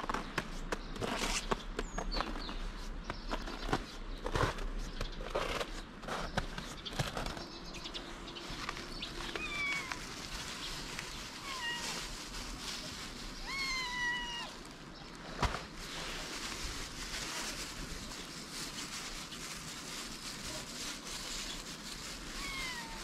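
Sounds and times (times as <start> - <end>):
clicks and rustles: 3.2 - 13.6
cat meowing: 9.3 - 10.0, 11.4 - 12.0, 13.4 - 14.6, 22.3 - 23.0.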